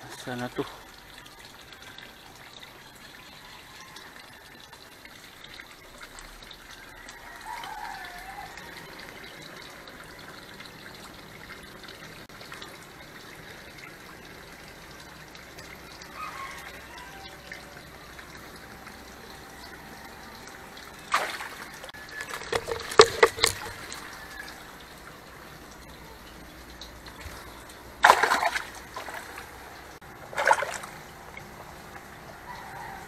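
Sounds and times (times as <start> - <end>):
water splashing into tank: 14.9 - 25.9, 26.8 - 32.0.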